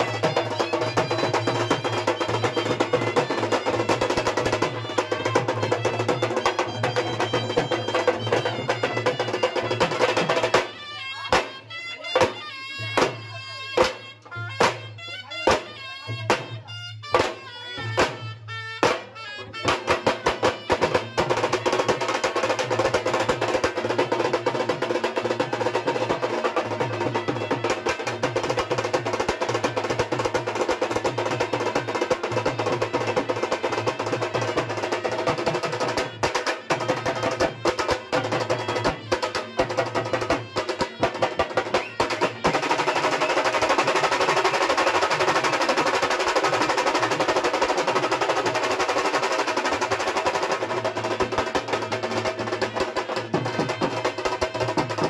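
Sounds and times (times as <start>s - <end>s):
drums beaten with sticks: 0.0s - 55.0s.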